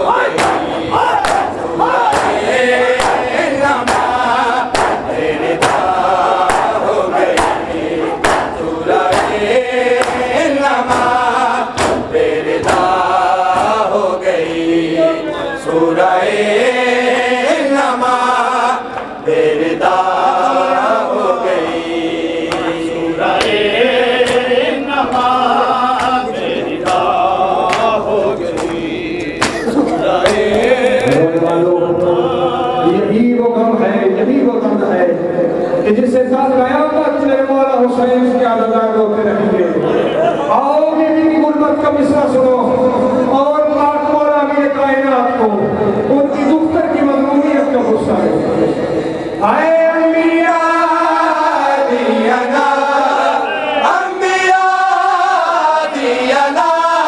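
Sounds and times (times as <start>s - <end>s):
men chanting over loudspeakers: 0.0s - 57.0s
chest beating slaps: 0.3s - 5.9s, 6.5s - 7.6s, 8.2s - 8.5s, 9.1s - 9.4s, 11.8s - 12.9s.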